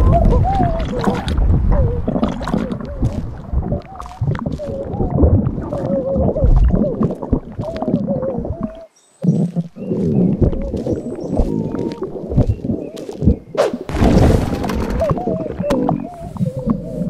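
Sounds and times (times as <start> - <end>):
small wet clicks: 0.0 - 13.6
deep stomach rumbling: 0.0 - 17.0.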